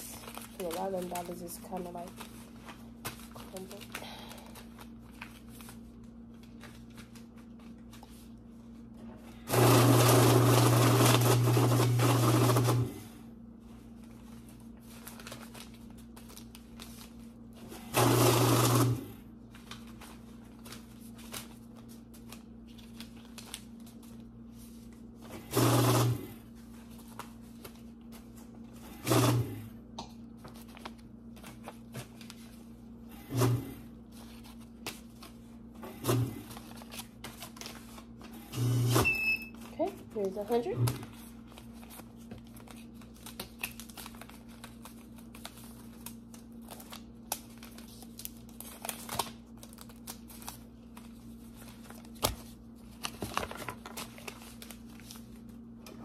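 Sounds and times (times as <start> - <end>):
banknotes rustling: 0.0 - 9.5, 13.6 - 17.8, 18.6 - 29.3, 30.3 - 38.4, 39.5 - 55.7
electric bill counter running: 9.5 - 13.0, 17.9 - 19.1, 25.5 - 26.2, 29.0 - 29.6, 38.6 - 39.3.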